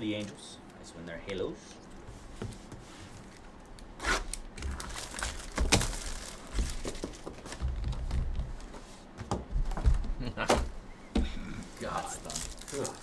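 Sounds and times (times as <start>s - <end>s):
foil wrapper crinkling and tearing: 4.2s - 7.4s, 11.8s - 13.0s
cards rustling: 4.3s - 8.6s, 11.8s - 13.0s.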